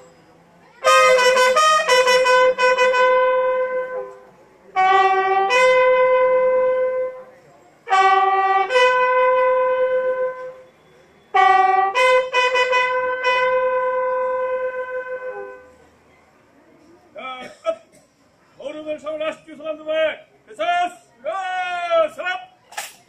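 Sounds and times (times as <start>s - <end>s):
bugle salute call: 0.8s - 4.2s, 4.8s - 7.2s, 7.9s - 10.6s, 11.3s - 15.7s.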